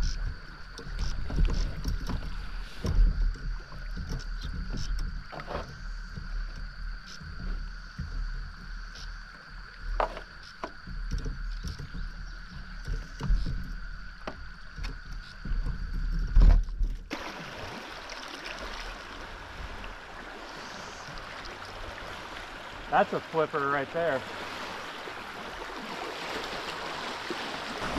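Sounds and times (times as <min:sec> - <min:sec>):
low rumble with knocks: 0:00.0 - 0:08.9, 0:09.6 - 0:17.1
flowing river water: 0:00.0 - 0:27.9.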